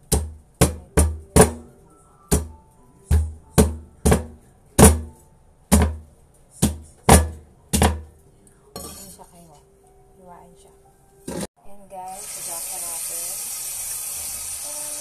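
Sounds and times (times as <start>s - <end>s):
cleaver chopping on wooden board: 2.3s - 5.1s.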